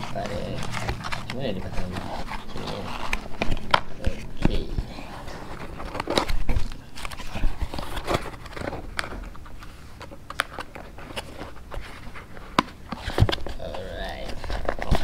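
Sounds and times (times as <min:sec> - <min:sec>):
paper sleeve sliding: 0:00.0 - 0:06.4
cardboard box being handled: 0:00.0 - 0:15.0.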